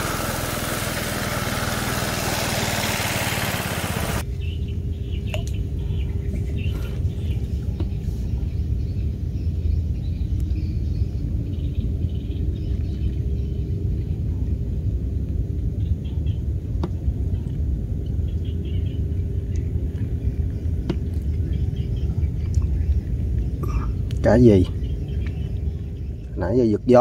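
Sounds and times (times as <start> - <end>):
faint bird chirps: 17.3 - 27.0.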